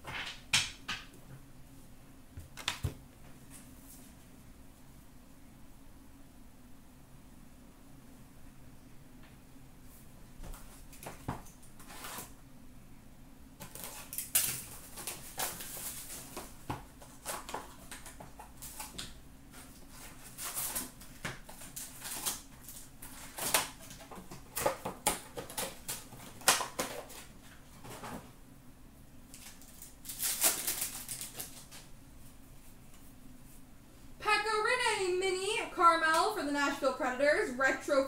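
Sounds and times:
wrappers crinkling: 13.6s - 18.9s, 19.6s - 27.3s, 29.3s - 31.9s
card packs tearing open: 13.6s - 19.0s, 19.9s - 27.3s, 29.3s - 31.8s.

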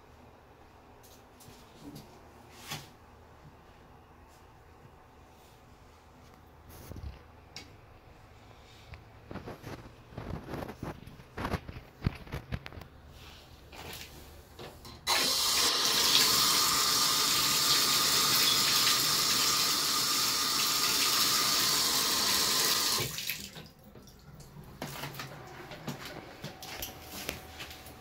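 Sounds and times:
faucet water pouring into tub: 15.1s - 24.2s.

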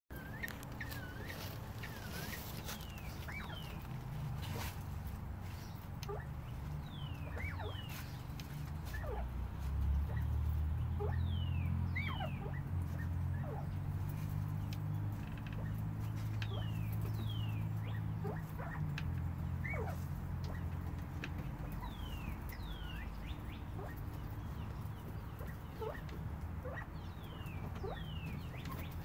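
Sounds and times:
quail whistled calls: 0.1s - 3.9s, 6.0s - 8.1s, 8.8s - 9.4s, 10.9s - 13.7s, 16.4s - 20.7s, 21.6s - 24.1s, 25.3s - 29.0s.

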